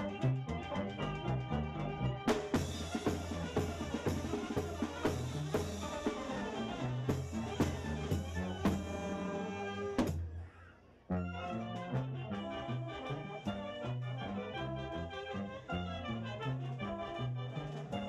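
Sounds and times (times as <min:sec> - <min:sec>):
folk dance music with drum beat: 0:00.0 - 0:10.4.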